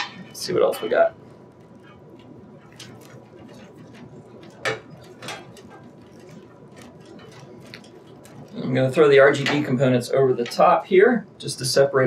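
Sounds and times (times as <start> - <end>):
cables and plastic connectors rustling: 0.9 - 9.7.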